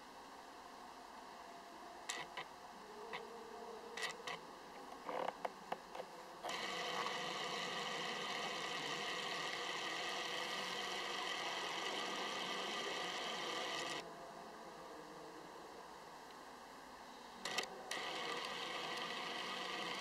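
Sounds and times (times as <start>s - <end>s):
autofocus motor whirring: 6.4s - 14.0s, 17.4s - 20.0s
lens motor buzzes: 6.4s - 14.0s, 17.5s - 20.0s.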